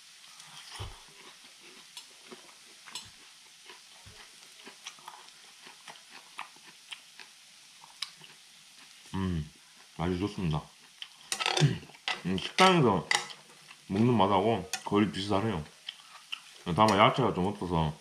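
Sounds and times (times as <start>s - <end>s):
faint sizzle: 0.0s - 18.0s
person chewing food: 0.3s - 9.0s, 10.8s - 12.0s, 15.8s - 17.0s
chopsticks clicking on grill pan: 16.3s - 17.1s.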